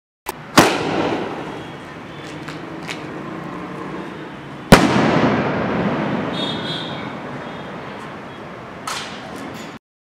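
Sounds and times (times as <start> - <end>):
firework bang: 0.6 - 1.6, 4.7 - 6.6.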